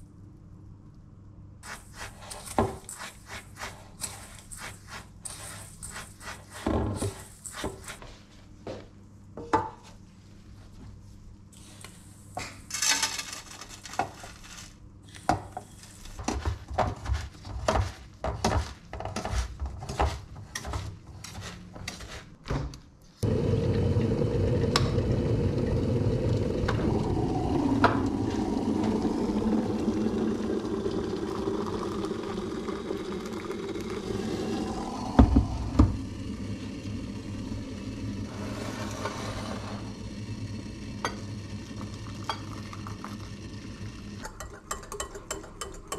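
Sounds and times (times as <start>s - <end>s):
electric kettle heating water: 23.2s - 45.9s.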